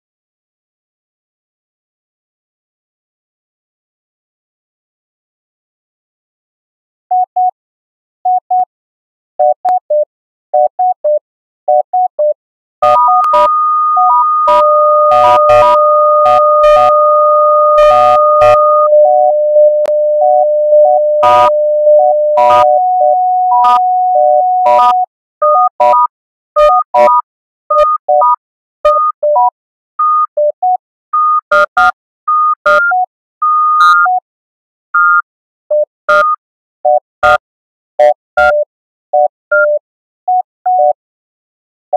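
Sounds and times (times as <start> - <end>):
short electronic beeps: 11.1 - 27.2
held electronic tones: 12.8 - 25.1.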